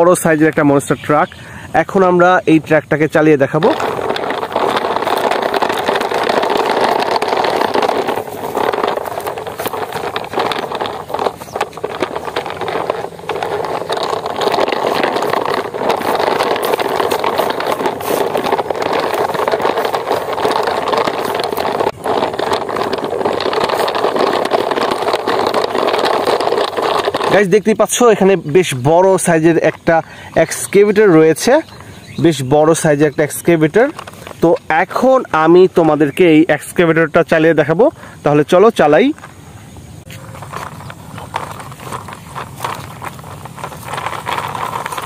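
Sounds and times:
truck engine running: 3.6s - 27.4s.

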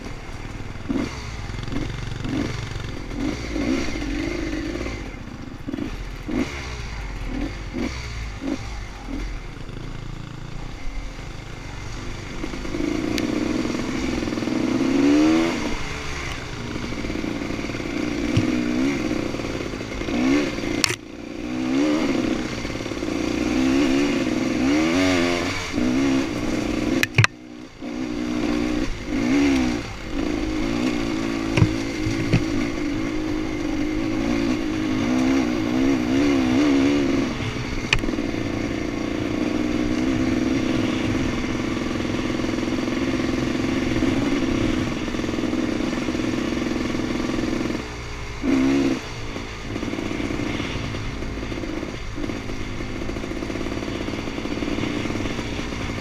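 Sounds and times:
dirt bike engine revving: 0.0s - 56.0s
sharp knocks: 27.0s - 27.4s, 31.5s - 32.6s.

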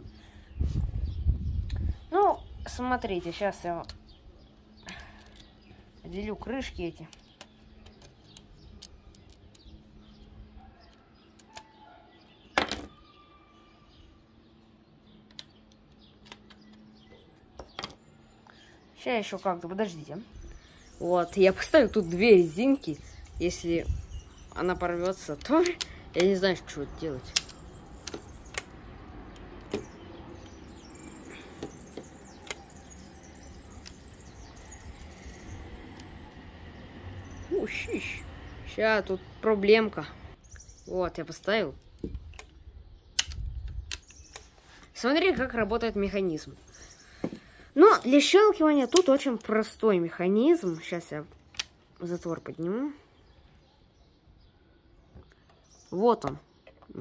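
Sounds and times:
plastic parts clicking and snapping: 7.1s - 9.8s, 15.2s - 18.0s, 24.9s - 26.4s, 27.3s - 34.1s, 41.9s - 44.5s, 51.3s - 51.8s.

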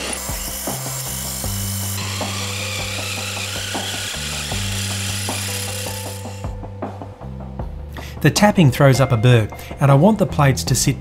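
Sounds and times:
drill cutting through brass: 0.0s - 6.6s.

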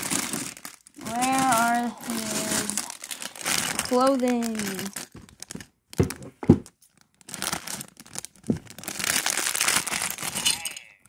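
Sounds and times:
plastic bags crinkling: 0.0s - 11.0s
thumps: 8.4s - 8.9s.

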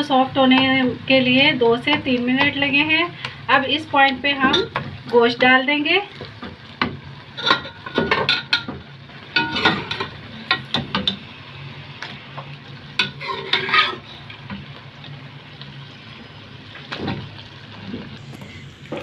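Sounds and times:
hot oil sizzling: 0.0s - 19.0s
metal spoon scraping a pot: 13.0s - 14.2s.

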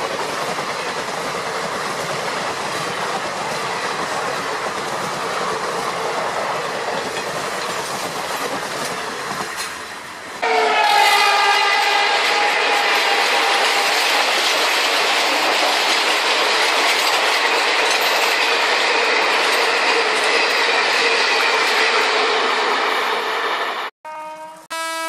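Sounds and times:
toy train rattling on track: 6.8s - 9.8s, 12.2s - 22.0s
toy train horn tone: 10.4s - 14.0s, 24.0s - 25.0s.

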